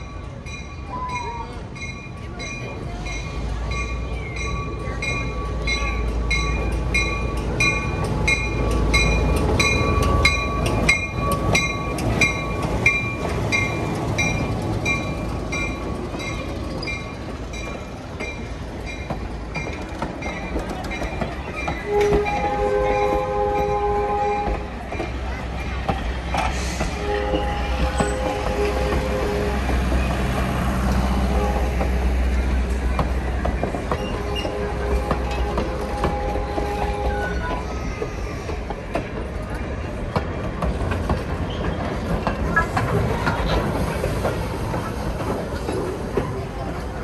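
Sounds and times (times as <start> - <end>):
locomotive bell ringing: 0.0 - 26.0
diesel locomotive engine rumbling: 0.0 - 47.0
train coaches rolling: 0.0 - 47.0
train horn chord: 21.9 - 24.6, 26.9 - 30.0, 31.2 - 31.9.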